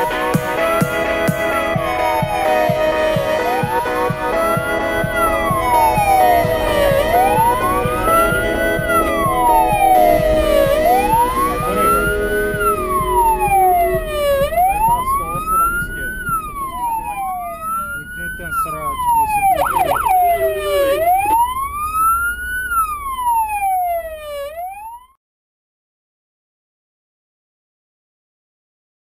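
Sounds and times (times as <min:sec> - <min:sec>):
vehicle engine rumbling: 0:00.0 - 0:21.8
fire engine siren wailing: 0:00.0 - 0:25.1.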